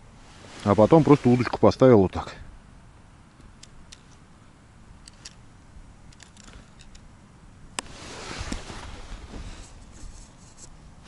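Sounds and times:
sharp click: 0:03.4 - 0:04.2, 0:05.0 - 0:05.4.

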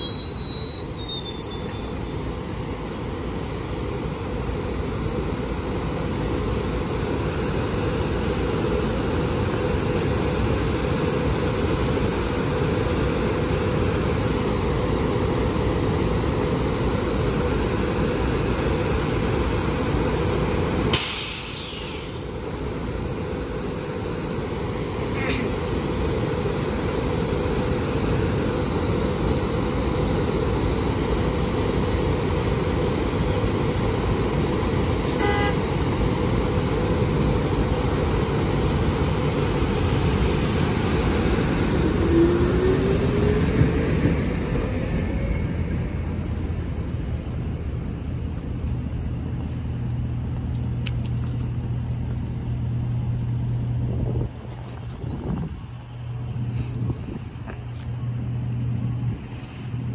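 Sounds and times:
steady low hum: 0:22.1 - 0:59.9.

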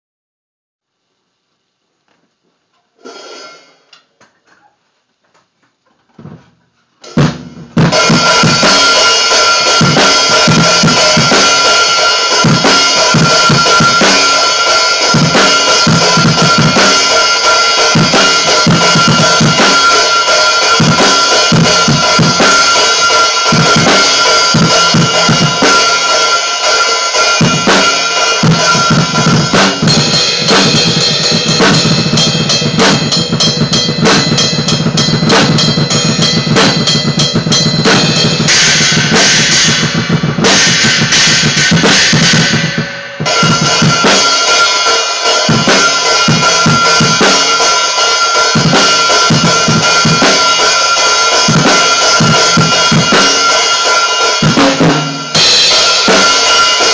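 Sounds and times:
bass drum and snare hits: 0:07.1 - 0:26.1, 0:27.2 - 0:44.5, 0:48.5 - 0:53.5, 0:54.4 - 0:56.9
ringing cymbals: 0:07.9 - 0:56.9.

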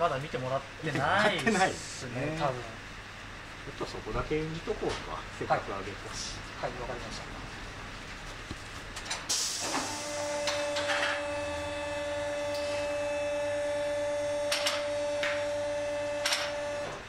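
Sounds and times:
electric lift motor humming: 0:09.3 - 0:17.0.

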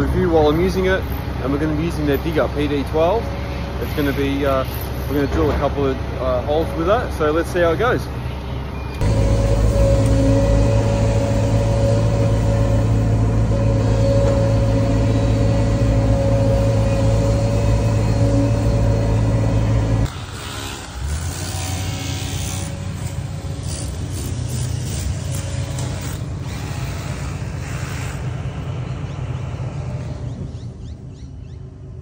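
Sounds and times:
excavator diesel engine and hydraulics: 0:00.0 - 0:32.0
hydraulic whine: 0:08.8 - 0:30.8.

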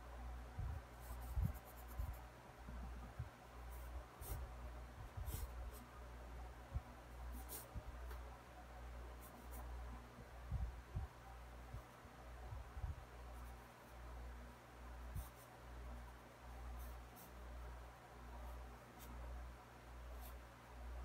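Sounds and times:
pencil scratching on paper: 0:00.9 - 0:02.2, 0:03.7 - 0:04.5, 0:05.2 - 0:05.9, 0:07.3 - 0:07.7.

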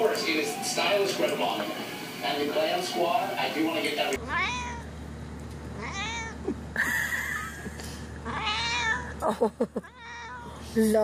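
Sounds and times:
kitten meowing: 0:04.2 - 0:04.9, 0:05.8 - 0:06.4, 0:08.3 - 0:09.1.

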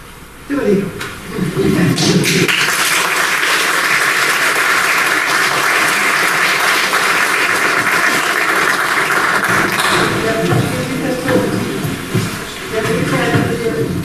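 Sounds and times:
audience applauding: 0:01.9 - 0:11.3.

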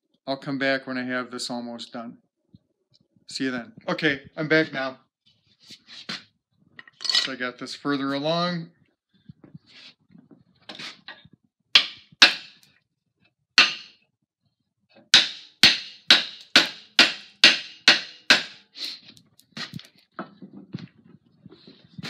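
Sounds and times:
hammer striking wooden handle: 0:11.8 - 0:12.6, 0:13.6 - 0:14.0, 0:15.1 - 0:18.6.

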